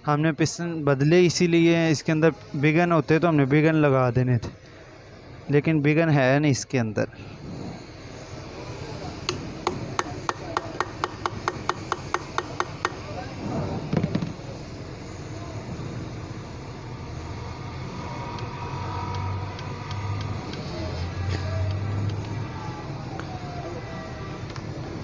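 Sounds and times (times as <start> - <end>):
ratchet wrench clicking: 9.3 - 13.1.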